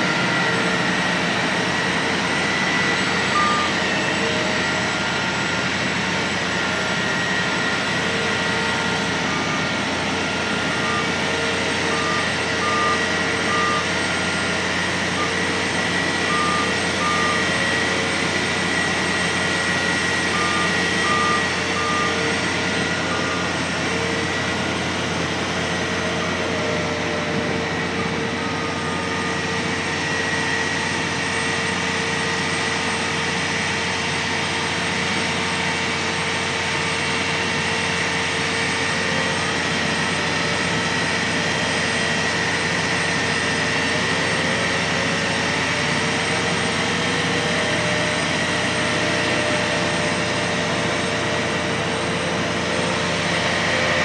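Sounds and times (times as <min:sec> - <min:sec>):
crane diesel engines running: 0:00.0 - 0:54.0.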